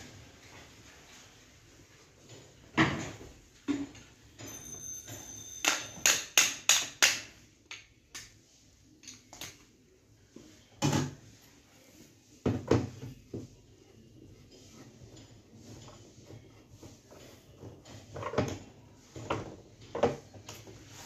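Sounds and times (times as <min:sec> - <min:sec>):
high metallic ringing: 0:04.4 - 0:06.2.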